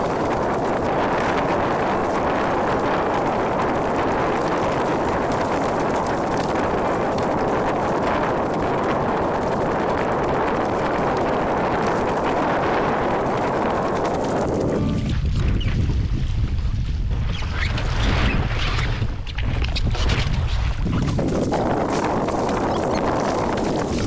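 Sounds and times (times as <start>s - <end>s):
water rushing along hull: 0.0s - 15.2s
wind buffeting microphone: 0.0s - 24.0s.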